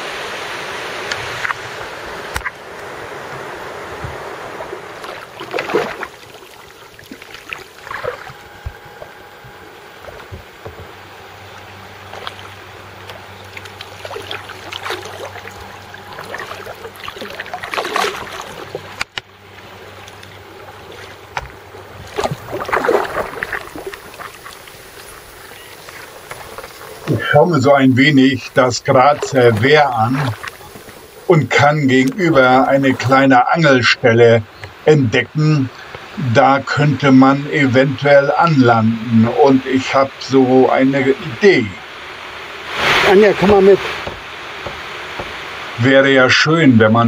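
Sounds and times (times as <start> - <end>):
paddle splashing in water: 0.0 - 33.1, 41.9 - 45.8
faint steady hum: 0.0 - 47.0
water and wind: 0.0 - 47.0.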